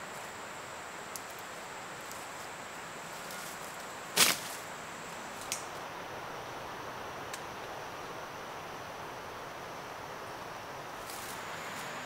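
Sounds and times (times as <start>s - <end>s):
crackling rustle: 0.0s - 5.8s, 10.9s - 12.0s
insect whine: 0.0s - 12.0s.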